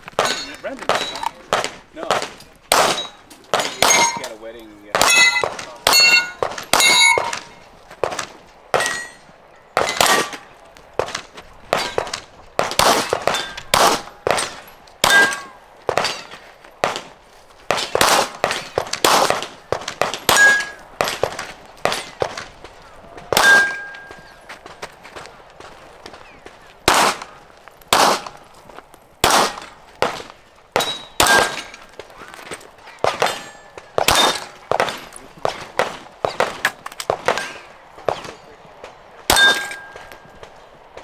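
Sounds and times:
steel target plates ringing: 0:00.2 - 0:01.4, 0:02.8 - 0:07.6, 0:08.8 - 0:10.5, 0:13.0 - 0:16.4, 0:20.2 - 0:21.2, 0:23.4 - 0:24.5, 0:30.7 - 0:31.9, 0:33.1 - 0:35.1, 0:39.3 - 0:40.4
gunshots: 0:00.2 - 0:09.2, 0:09.8 - 0:22.6, 0:23.2 - 0:24.3, 0:26.8 - 0:28.5, 0:29.2 - 0:41.0.

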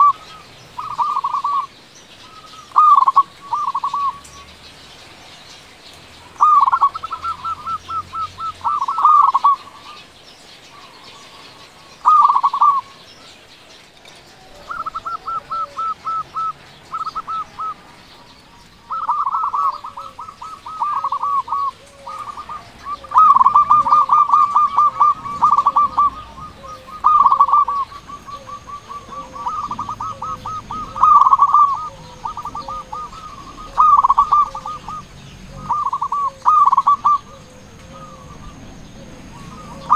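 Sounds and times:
dove cooing: 0:00.0 - 0:05.4, 0:06.1 - 0:39.9.

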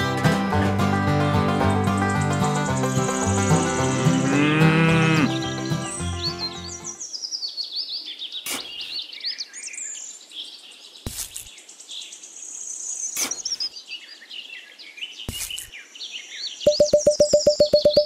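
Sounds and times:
birds chirping and singing: 0:01.8 - 0:10.6
fast beeping: 0:16.7 - 0:18.0
sharp taps: 0:16.7 - 0:18.0.

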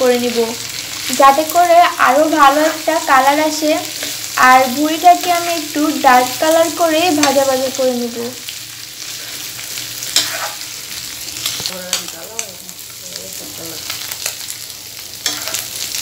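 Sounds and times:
tripe sizzling in oil: 0:00.0 - 0:16.0
spatula scraping a pan: 0:09.0 - 0:12.1, 0:15.2 - 0:15.9.

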